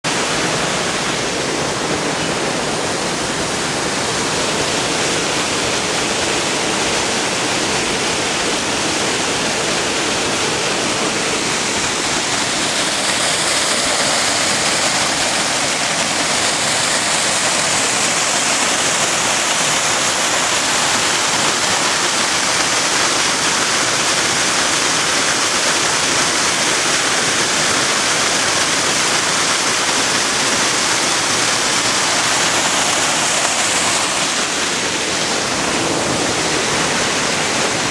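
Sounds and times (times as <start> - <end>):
fast-flowing river water: 0.0 - 37.9
white water churning: 0.0 - 37.9.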